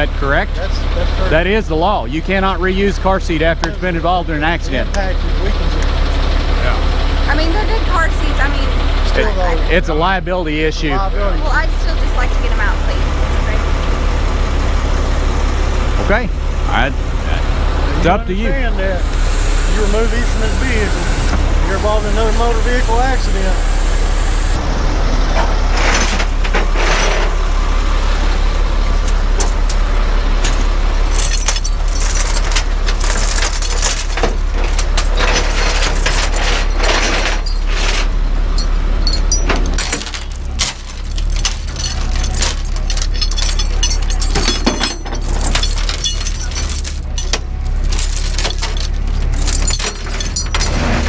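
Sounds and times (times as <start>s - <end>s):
truck engine idling: 0.0s - 51.0s
metallic clanks and rattles: 25.3s - 27.4s, 30.4s - 51.0s
steel chains jangling: 30.4s - 51.0s.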